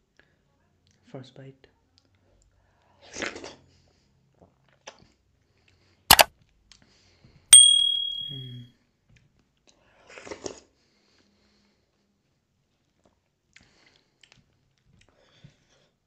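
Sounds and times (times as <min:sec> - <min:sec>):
bell ding: 0:07.6 - 0:08.6.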